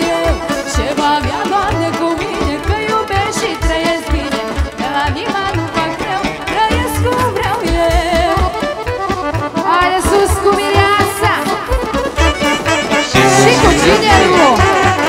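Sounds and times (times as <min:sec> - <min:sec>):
folk band playing dance music: 0:00.0 - 0:15.0
person singing: 0:13.1 - 0:14.7.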